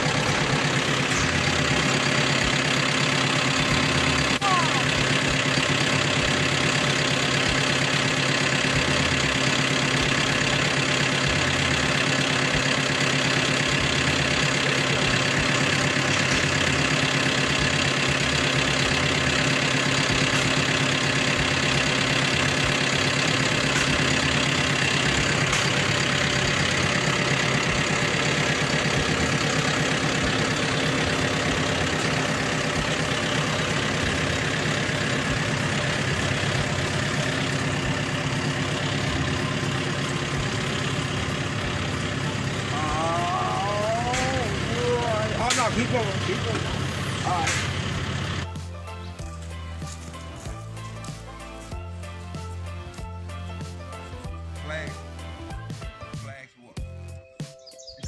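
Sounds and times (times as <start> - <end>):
tractor diesel engine hum: 0.0 - 58.0.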